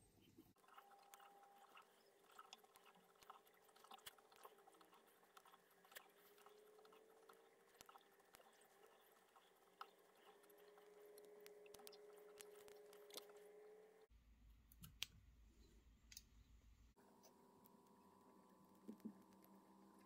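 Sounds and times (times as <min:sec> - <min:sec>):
yarn and thread rustling: 0:00.2 - 0:13.8.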